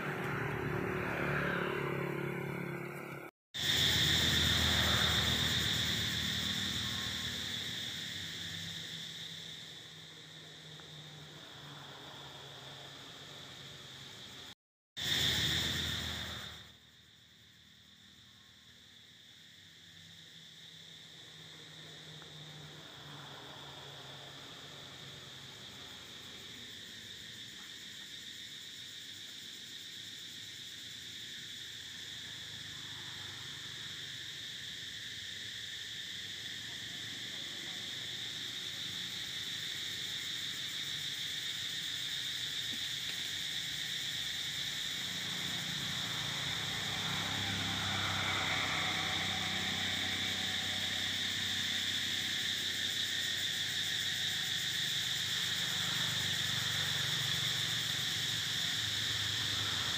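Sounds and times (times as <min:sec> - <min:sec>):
high insect chorus: 0:00.0 - 0:59.9.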